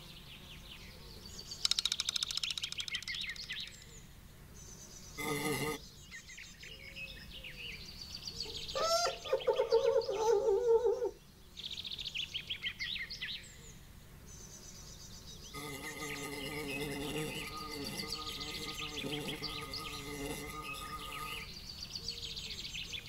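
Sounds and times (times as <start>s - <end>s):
insect buzz: 0.0s - 6.3s, 7.6s - 23.0s
birds chirping: 0.0s - 23.0s
cartoon fly buzzing: 5.2s - 5.8s, 15.5s - 21.6s.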